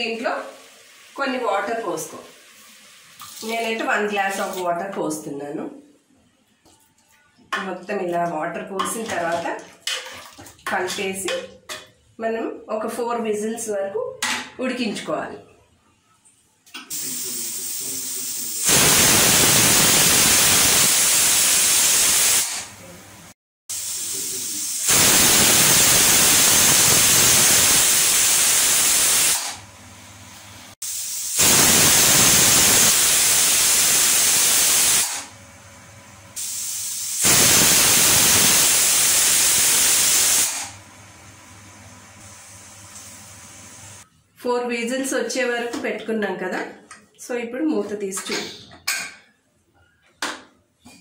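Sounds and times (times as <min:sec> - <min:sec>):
steam hissing from valve: 0:16.9 - 0:22.7, 0:23.7 - 0:29.6, 0:30.8 - 0:35.3, 0:36.4 - 0:40.8
pressure cooker whistling: 0:36.4 - 0:40.7.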